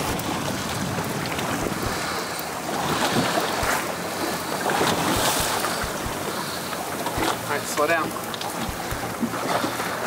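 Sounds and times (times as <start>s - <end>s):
wind buffeting microphone: 0.0s - 9.7s
sea water washing around boat: 0.0s - 10.0s
low thumps from gusts: 0.8s - 2.2s, 4.7s - 6.4s, 8.6s - 9.3s.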